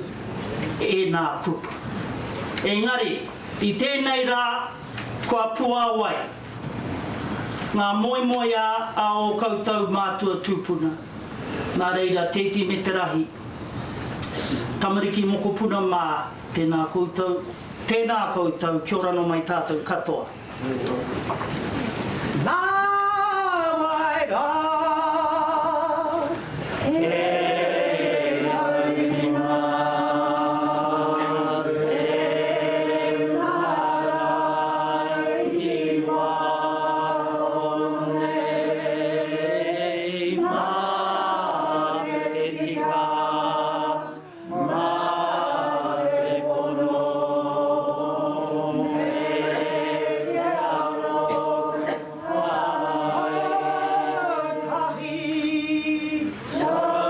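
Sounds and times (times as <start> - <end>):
group of voices singing: 22.4 - 57.0.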